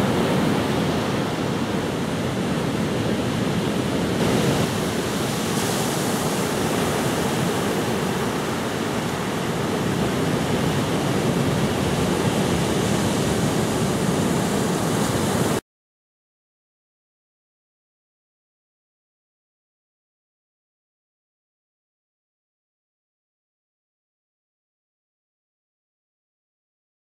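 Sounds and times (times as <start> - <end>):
ocean surf breaking: 0.0 - 15.6.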